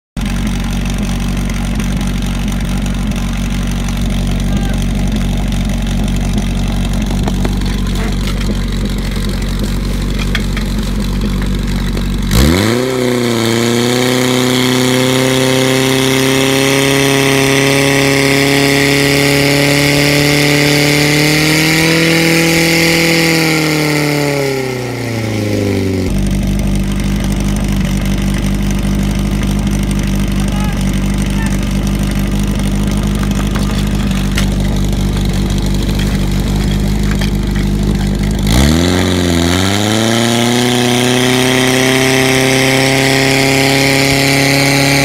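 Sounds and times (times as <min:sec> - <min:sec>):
pump engine idling and revving: 0:00.1 - 0:45.0.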